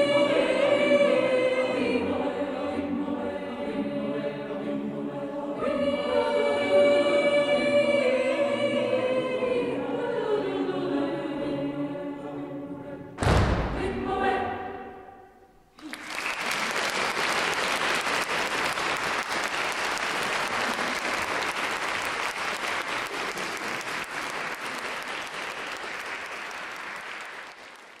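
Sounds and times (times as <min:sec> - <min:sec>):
choir final chord: 0:00.0 - 0:15.4
audience applause: 0:15.8 - 0:28.0.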